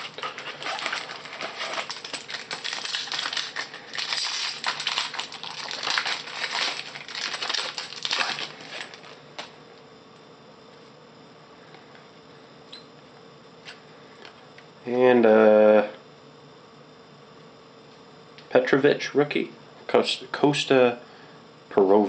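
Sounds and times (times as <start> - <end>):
foil wrapper crinkling and tearing: 0.0 - 9.5.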